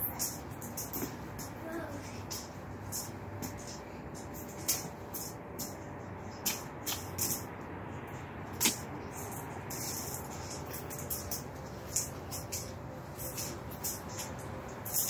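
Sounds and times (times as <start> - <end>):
low outdoor background hum: 0.0 - 15.0.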